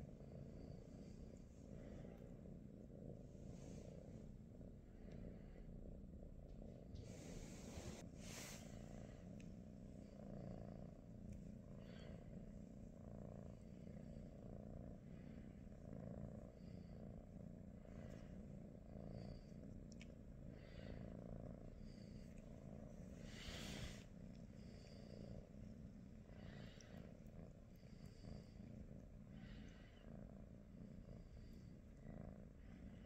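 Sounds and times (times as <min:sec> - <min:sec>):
cat purring: 0:00.0 - 0:33.0.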